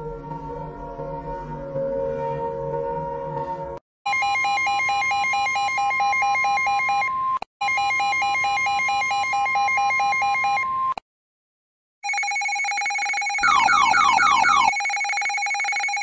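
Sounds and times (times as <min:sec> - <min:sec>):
electronic alarm warbling tone: 0:13.1 - 0:15.4.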